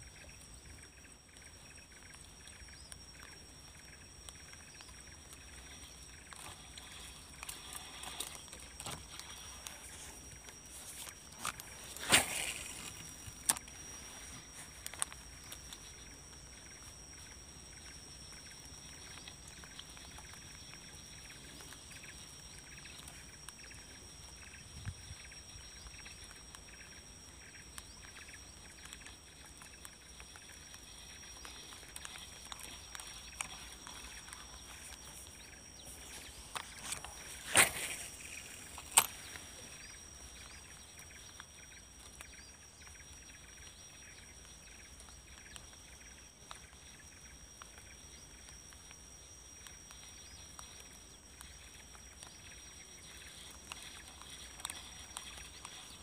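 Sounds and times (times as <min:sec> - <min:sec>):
high insect whine: 0:00.0 - 0:56.0.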